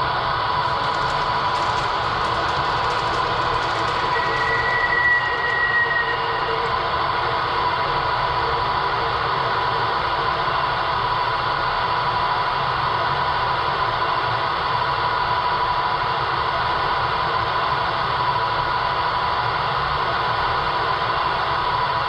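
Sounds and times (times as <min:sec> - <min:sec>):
model train idling hiss and hum: 0:00.2 - 0:10.1.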